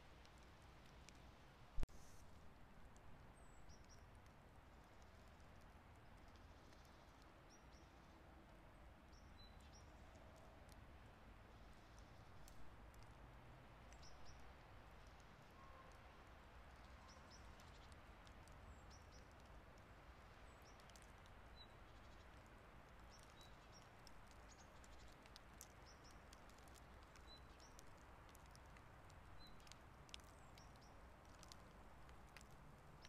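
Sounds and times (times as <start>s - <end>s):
snowflakes ticking: 0.0s - 8.2s, 16.6s - 33.0s.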